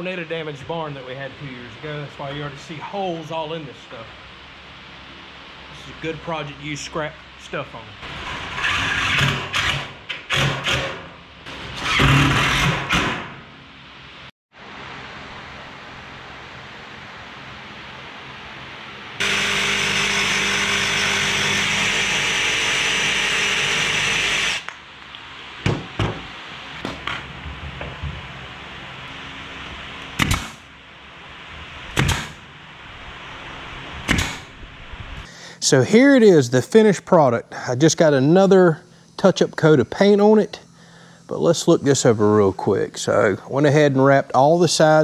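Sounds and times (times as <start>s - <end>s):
power tool bursts: 8.0s - 13.4s, 19.2s - 24.7s
powered machine running: 19.2s - 24.8s
sharp pops: 34.1s - 34.5s.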